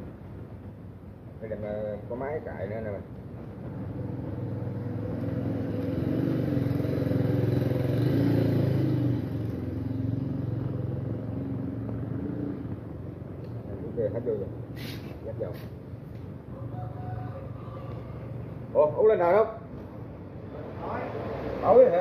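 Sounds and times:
vehicle engine passing by: 3.6 - 15.7, 19.8 - 22.0.

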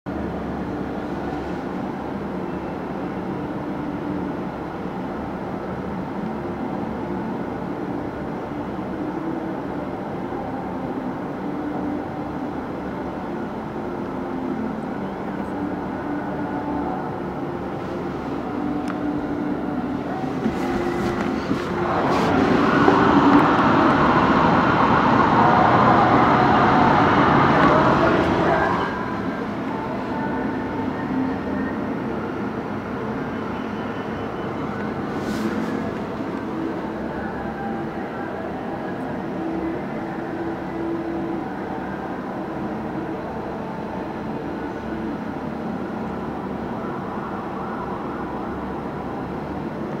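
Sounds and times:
rushing street noise: 0.1 - 50.0
traffic rumble: 0.1 - 50.0
fire engine siren: 13.8 - 45.2.

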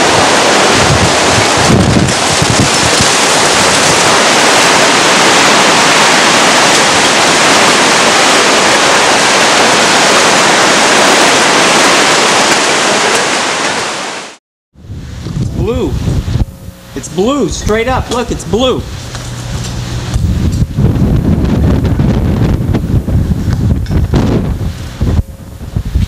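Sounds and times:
wind buffeting microphone: 0.0 - 12.5, 14.8 - 26.0
heavy rain: 0.0 - 15.3
hurricane wind: 0.0 - 26.0.

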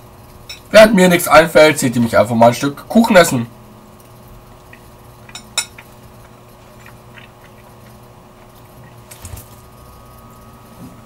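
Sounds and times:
faint steady hum: 0.0 - 11.0
person chewing with mouth clicks: 4.7 - 9.2.

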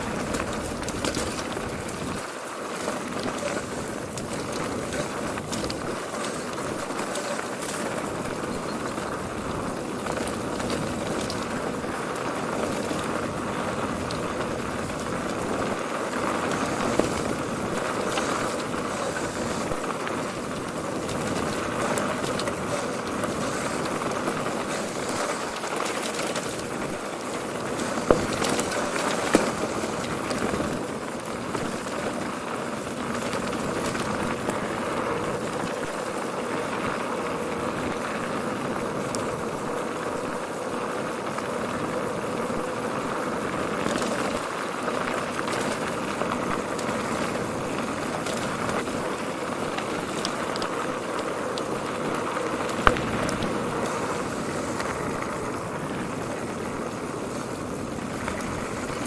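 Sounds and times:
mountain bike tyre and rattle noise: 0.0 - 59.0.

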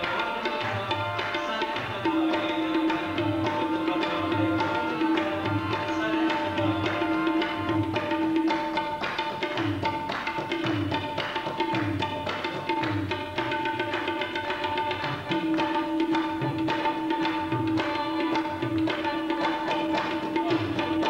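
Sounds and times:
harmonium sustained notes: 0.0 - 8.6
tabla drumming: 0.0 - 21.0.

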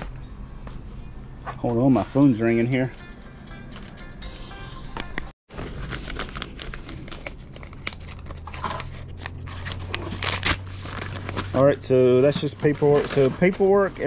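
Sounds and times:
paper crinkling and rustling: 5.5 - 14.0.

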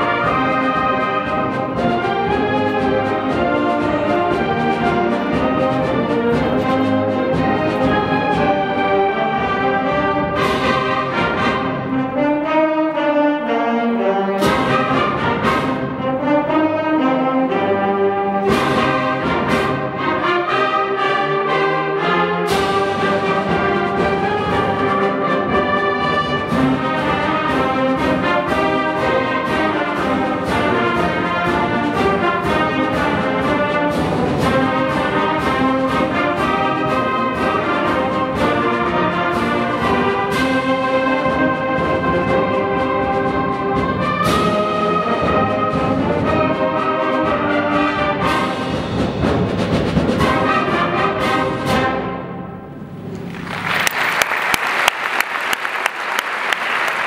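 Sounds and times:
concert band playing a march: 0.0 - 57.0
applause: 53.2 - 57.0.

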